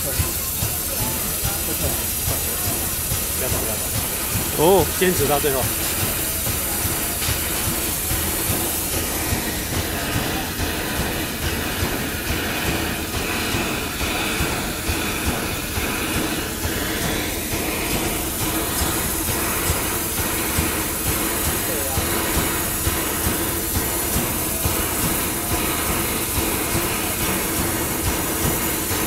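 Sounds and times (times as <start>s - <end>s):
steam hissing: 0.0s - 29.0s.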